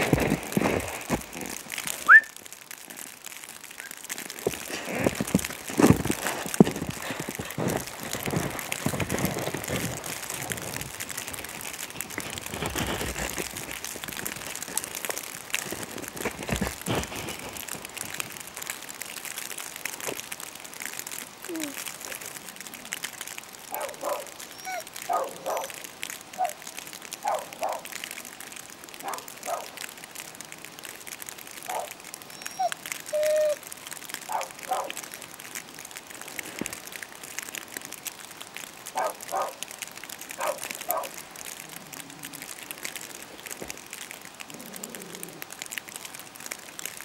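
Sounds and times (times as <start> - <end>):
plastic rustling on microphone: 0.0 - 47.0
distant dog barking: 23.7 - 25.8, 27.2 - 27.9, 29.0 - 29.7, 31.7 - 32.0, 34.3 - 35.0, 39.0 - 39.6, 40.4 - 41.2.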